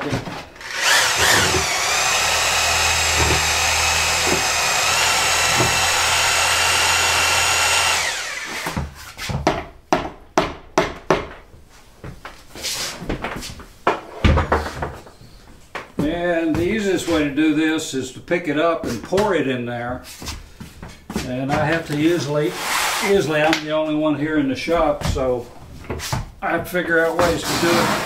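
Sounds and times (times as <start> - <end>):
electric drill whining: 0.6 - 8.8
sharp knocks and clatter: 2.9 - 6.0.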